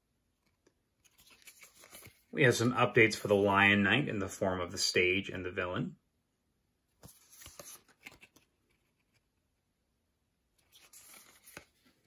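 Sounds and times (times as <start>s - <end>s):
game cards rustling and clicking: 0.4s - 2.7s, 7.0s - 9.4s, 10.6s - 12.0s.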